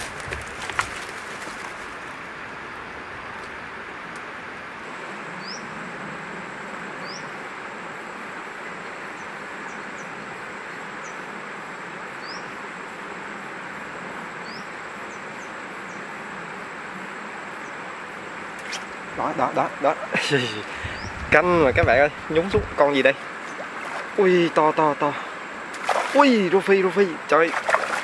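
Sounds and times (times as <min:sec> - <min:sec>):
high insect whine: 0:00.0 - 0:28.0
steady rushing hiss: 0:00.0 - 0:28.0
bird chirping: 0:20.3 - 0:22.7.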